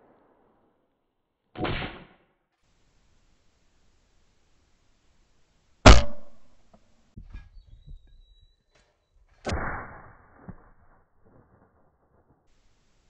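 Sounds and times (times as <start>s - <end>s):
shotgun shot: 1.6s - 2.2s, 5.9s - 6.6s, 9.4s - 10.8s.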